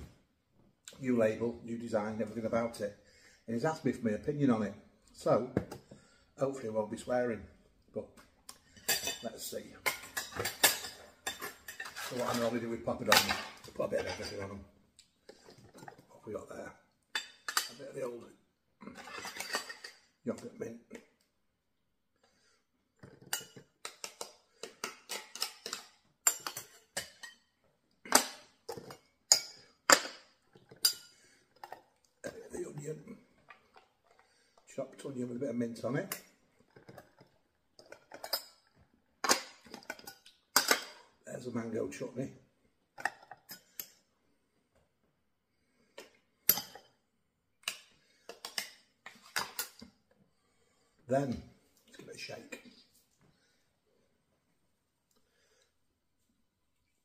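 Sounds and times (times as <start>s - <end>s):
metal spoon clinking on steel pots: 8.7s - 14.5s, 17.1s - 18.0s, 19.0s - 20.4s, 23.0s - 27.5s, 28.1s - 32.8s, 36.0s - 41.1s, 46.4s - 46.9s, 47.6s - 49.8s.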